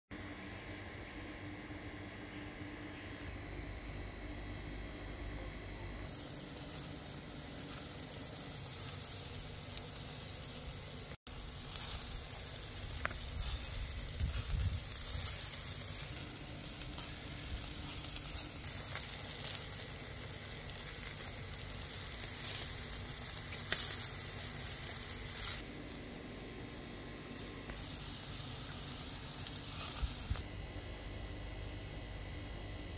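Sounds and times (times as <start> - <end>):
meat sizzling on grill: 6.0 - 30.5.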